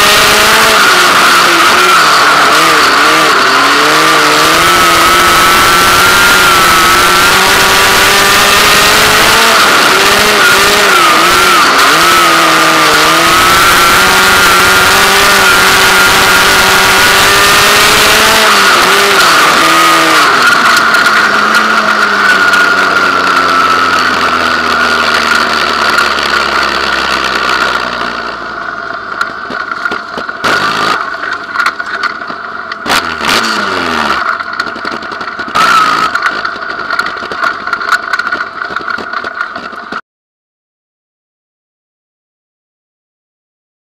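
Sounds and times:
race car engine at high revs: 0:00.0 - 0:40.0
car knocking over rough ground: 0:15.6 - 0:40.0.

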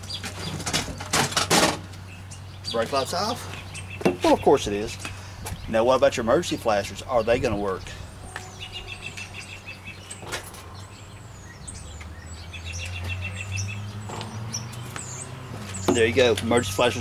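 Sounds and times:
small birds chirping: 0:00.0 - 0:17.0
rapid high bird trills: 0:08.0 - 0:11.9.

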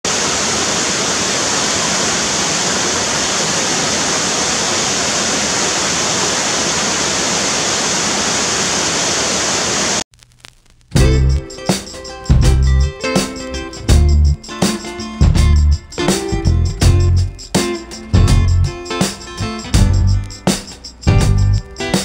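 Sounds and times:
flowing water rushing: 0:00.0 - 0:10.0.

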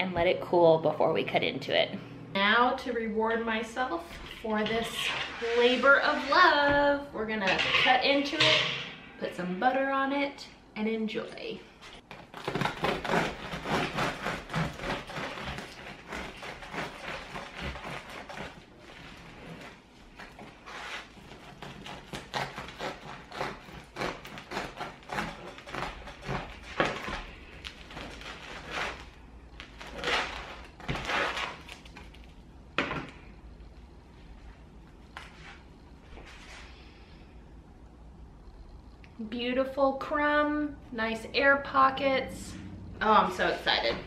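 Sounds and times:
bread knife sawing crusty loaf: 0:12.4 - 0:31.7.

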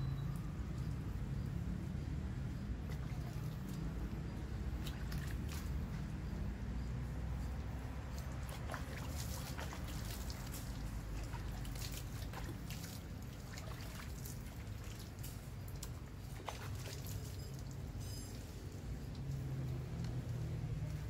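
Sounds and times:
water splashing on concrete: 0:02.8 - 0:05.9, 0:08.2 - 0:17.8.

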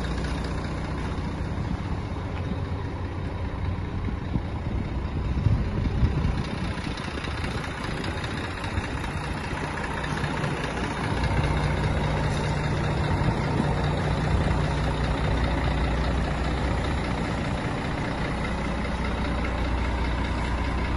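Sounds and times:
diesel truck engine running: 0:00.0 - 0:20.9.

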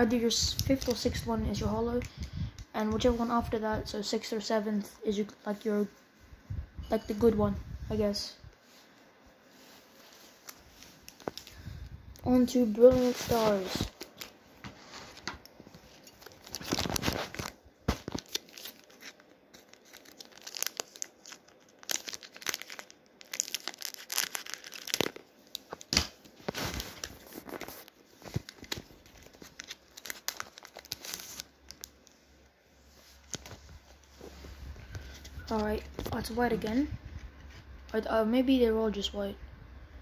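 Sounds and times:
foil wrapper tearing and crinkling: 0:16.0 - 0:32.1.

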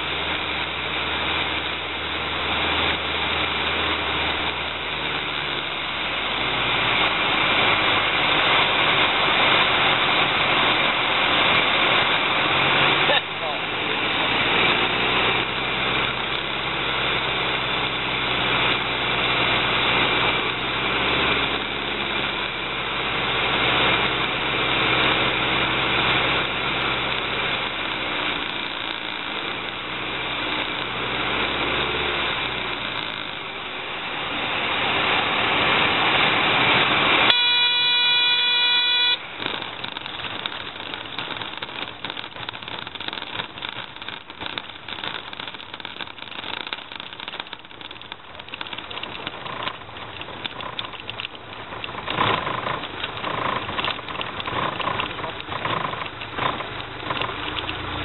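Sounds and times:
aircraft engine and propeller: 0:00.0 - 0:58.0
stall warning horn: 0:37.3 - 0:39.3.

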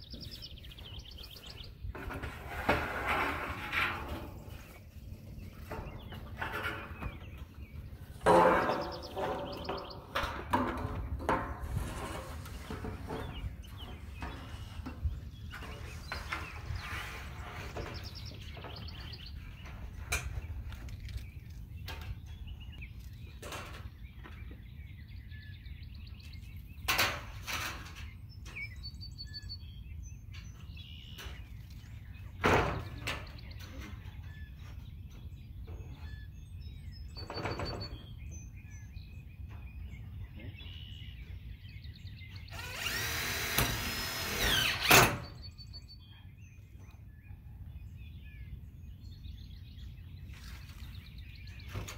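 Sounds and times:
wind rumble on microphone: 0:00.0 - 0:44.3
birds chirping: 0:00.0 - 0:51.9
sharp knocks on metal panels: 0:08.2 - 0:12.0, 0:32.4 - 0:33.9
power drill driving screws: 0:42.5 - 0:45.2.

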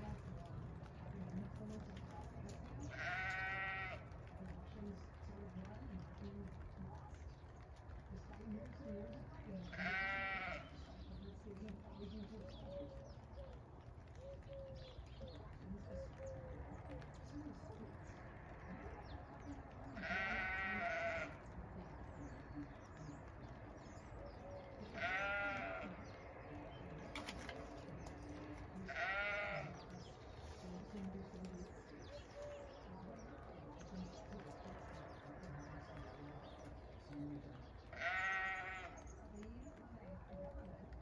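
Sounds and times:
faint low sheep calls: 0:02.4 - 0:05.1, 0:09.6 - 0:11.1, 0:19.7 - 0:21.6, 0:22.2 - 0:36.6, 0:37.9 - 0:39.2
sheep bleating: 0:02.8 - 0:04.2, 0:09.6 - 0:10.8, 0:20.0 - 0:21.5, 0:24.8 - 0:26.2, 0:28.7 - 0:29.9, 0:37.9 - 0:39.1.

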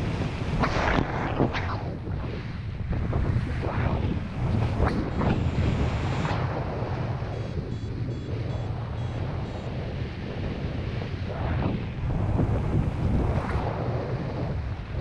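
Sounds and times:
wind buffeting microphone: 0:00.0 - 0:15.0
faint short high beeps: 0:07.3 - 0:09.7.

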